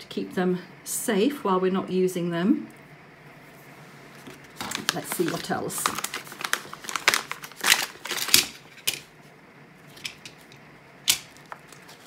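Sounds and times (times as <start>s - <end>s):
plastic packet crinkling: 4.3s - 9.1s.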